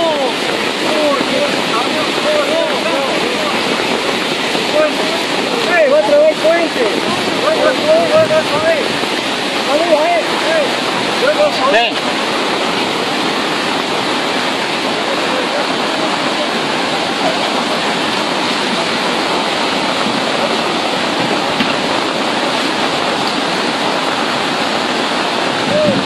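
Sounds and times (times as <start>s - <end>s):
torrent of water rushing: 0.0s - 26.0s.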